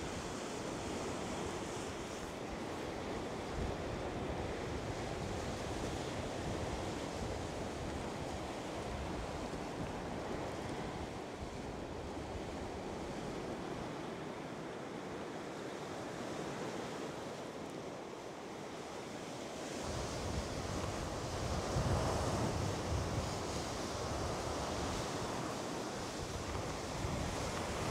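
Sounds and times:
wind rumble on microphone: 0:19.7 - 0:27.9.

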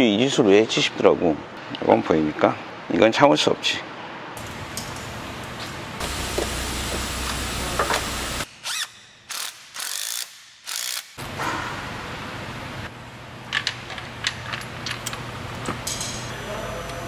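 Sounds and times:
ratchet wrench clicking: 0:08.6 - 0:11.2.

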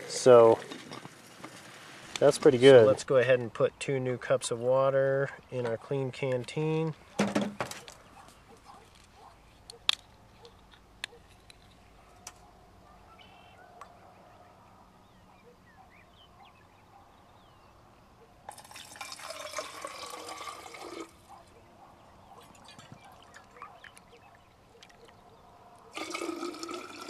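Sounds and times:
water poured into metal bottle: 0:18.5 - 0:21.2, 0:25.9 - 0:27.0.

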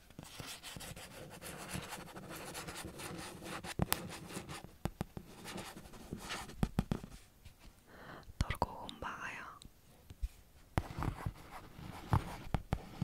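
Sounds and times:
pen scratching on paper: 0:00.2 - 0:07.1, 0:10.8 - 0:13.0.

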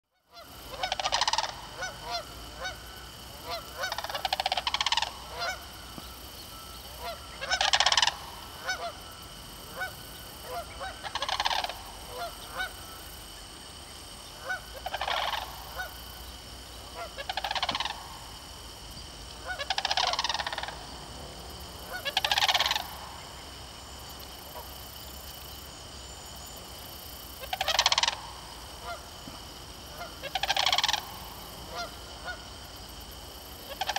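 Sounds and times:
cranes rattling trumpeting calls: 0:00.2 - 0:13.0, 0:14.4 - 0:16.0, 0:16.8 - 0:18.3, 0:19.4 - 0:21.0, 0:21.8 - 0:23.3, 0:27.4 - 0:29.3, 0:29.9 - 0:32.5, 0:33.6 - 0:33.9.

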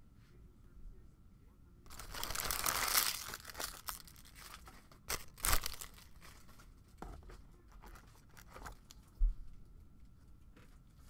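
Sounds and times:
plastic wrapping crinkling: 0:01.9 - 0:06.7.

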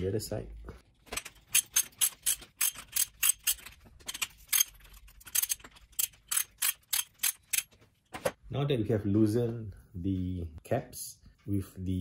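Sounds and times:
ratchet wrench clicking: 0:01.5 - 0:07.7.

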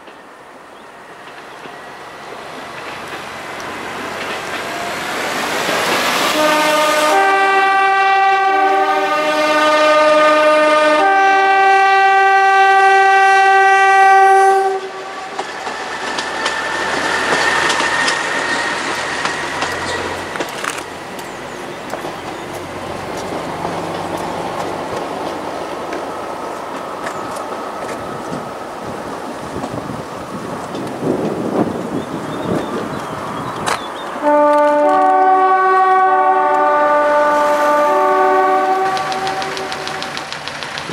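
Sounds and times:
wheels ticking over rail joints: 0:00.0 - 0:06.0, 0:15.3 - 0:35.1, 0:38.4 - 0:40.9
diesel railcar running: 0:00.0 - 0:40.9
two-tone train horn: 0:06.2 - 0:15.5, 0:34.2 - 0:40.2.

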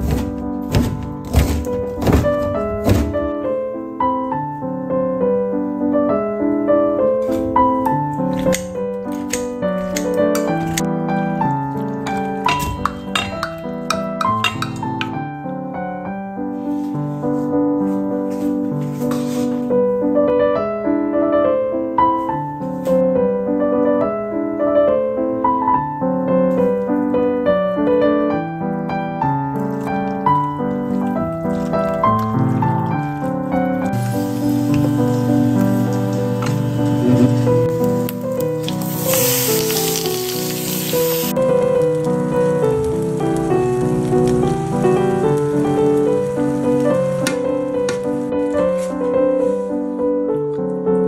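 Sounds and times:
slow piano melody: 0:00.0 - 0:51.0.

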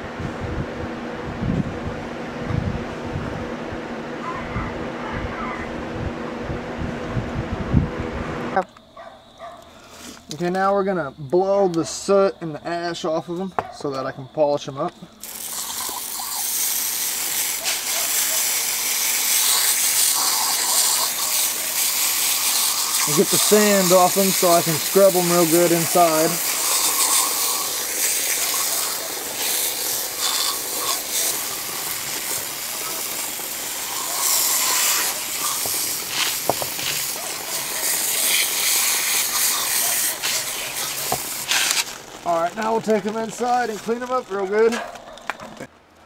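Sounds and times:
air blow gun hissing: 0:15.2 - 0:41.9
hose nozzle spraying water: 0:15.2 - 0:44.2.

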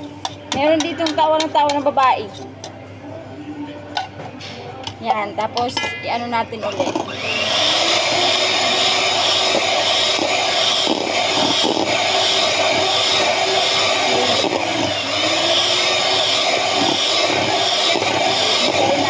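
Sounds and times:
electric hand mixer whipping: 0:06.6 - 0:19.0.

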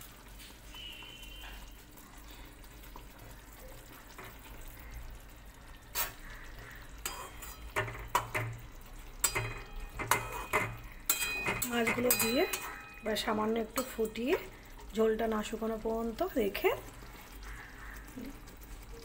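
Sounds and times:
light hiss: 0:05.9 - 0:07.4
metal spatula clinking on pan: 0:07.0 - 0:14.5.

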